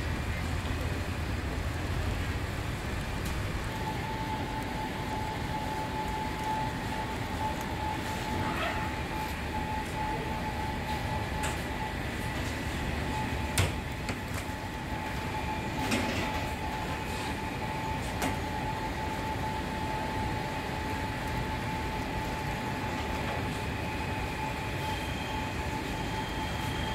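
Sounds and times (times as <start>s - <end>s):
machinery hum with whine: 0.0s - 26.9s.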